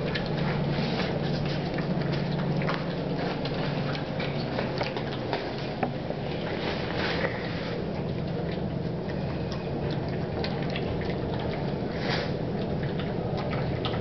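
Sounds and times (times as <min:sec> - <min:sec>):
puppy lapping and chewing: 0:00.0 - 0:14.0.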